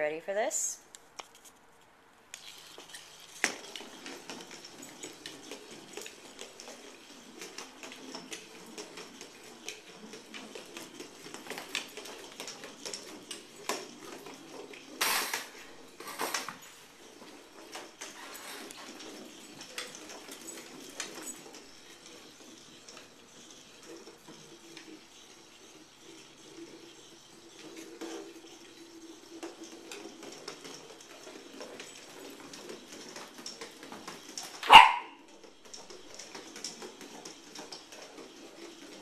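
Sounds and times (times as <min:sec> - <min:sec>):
toy motor whirring with rattles: 0:02.3 - 0:39.0
puppy sharp bark: 0:34.6 - 0:35.2.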